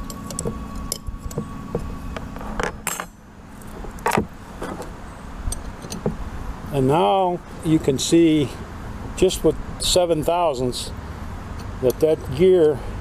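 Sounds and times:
wrench clinking on metal: 0:02.7 - 0:03.2.

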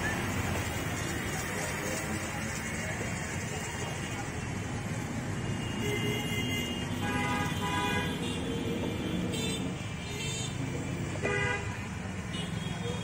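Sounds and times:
street traffic: 0:00.0 - 0:13.0
vehicle horn: 0:05.6 - 0:08.5, 0:11.2 - 0:13.0.

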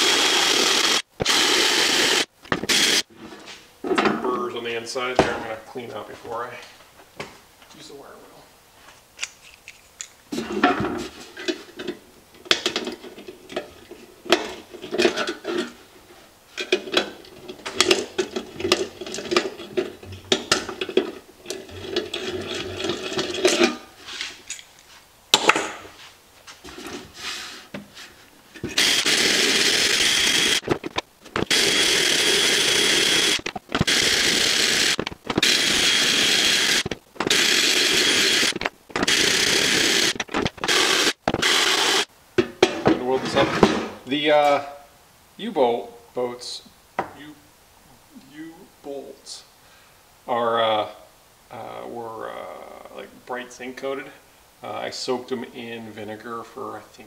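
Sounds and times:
drill wire wheel grinding steel: 0:00.0 - 0:03.2, 0:16.6 - 0:23.9, 0:28.6 - 0:30.7, 0:31.4 - 0:42.1
metal can clattering and scraping: 0:10.3 - 0:15.8, 0:16.5 - 0:24.3.

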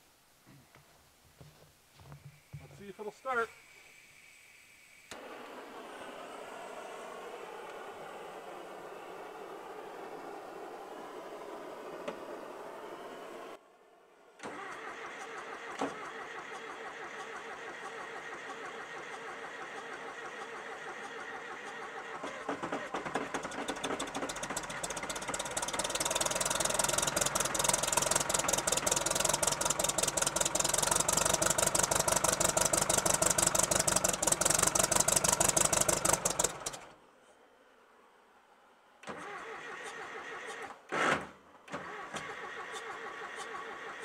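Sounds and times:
diesel engine cranking: 0:14.4 - 0:37.0, 0:39.0 - 0:44.0
diesel engine rough clatter: 0:21.6 - 0:36.9.

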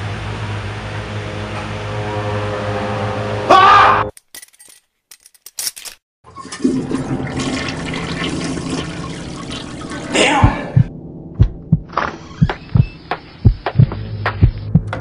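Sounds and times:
toilet flushing water rush: 0:06.3 - 0:10.1
low thumps: 0:10.4 - 0:15.0.

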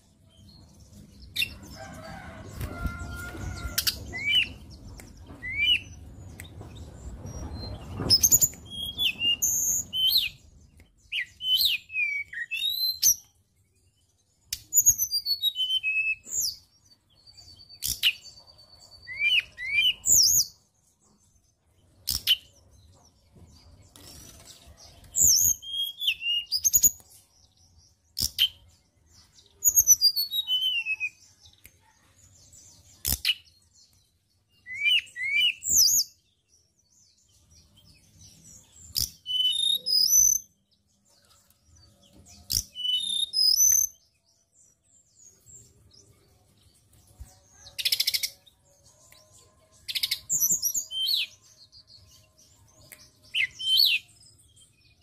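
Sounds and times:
bird singing whistled notes: 0:05.4 - 0:06.4, 0:07.1 - 0:13.3, 0:14.5 - 0:16.6, 0:17.2 - 0:20.6, 0:25.1 - 0:27.0, 0:29.5 - 0:31.2, 0:34.5 - 0:36.3, 0:37.8 - 0:40.6, 0:42.4 - 0:44.2, 0:49.8 - 0:51.9, 0:52.9 - 0:54.2.

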